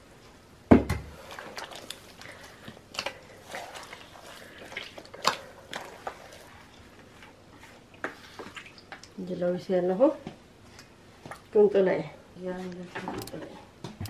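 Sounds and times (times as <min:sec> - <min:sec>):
wet dough squelching: 0:01.1 - 0:09.2.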